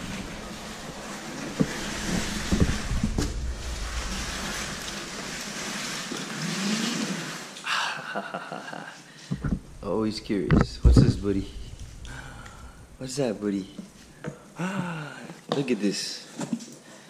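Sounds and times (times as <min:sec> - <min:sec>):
sharp knocks: 0:10.4 - 0:13.0.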